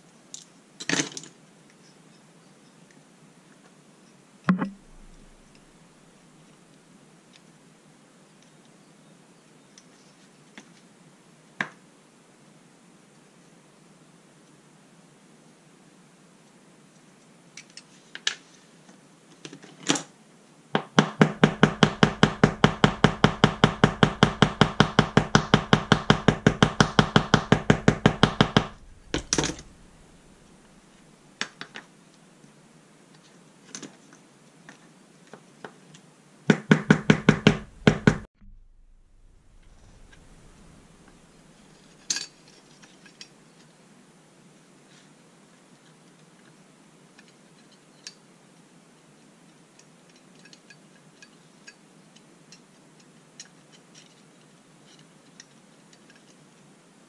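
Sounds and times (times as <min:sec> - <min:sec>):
hammer tapping on steel: 0:04.5 - 0:05.6, 0:20.8 - 0:30.4, 0:36.5 - 0:40.8.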